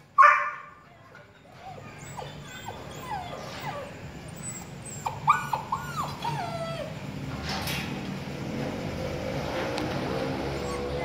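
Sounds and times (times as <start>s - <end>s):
dogs whining: 1.4s - 7.1s, 10.4s - 11.0s.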